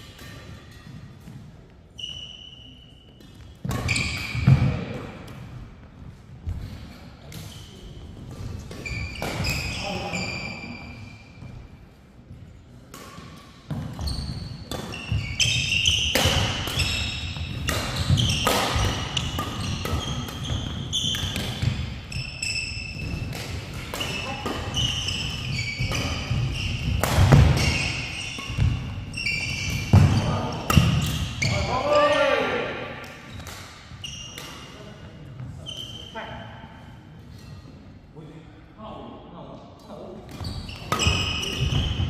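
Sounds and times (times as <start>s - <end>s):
sneakers squeaking on court: 0.2s - 4.8s, 7.4s - 11.6s, 13.1s - 32.0s, 33.2s - 34.7s, 35.4s - 36.2s, 40.3s - 42.0s
rackets smacking shuttlecock: 12.9s - 31.4s, 32.9s - 34.7s, 40.3s - 42.0s.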